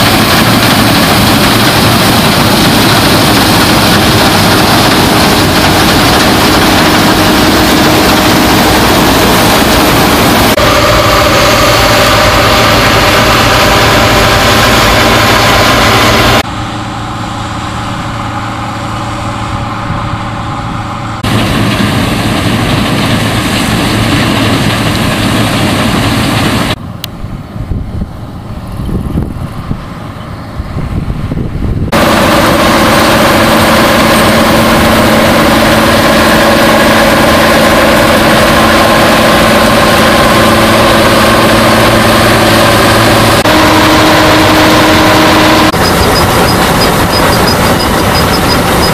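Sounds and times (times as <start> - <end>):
threshing machinery rattling: 0.0 - 16.4, 31.9 - 48.9
diesel engine hum: 0.0 - 48.9.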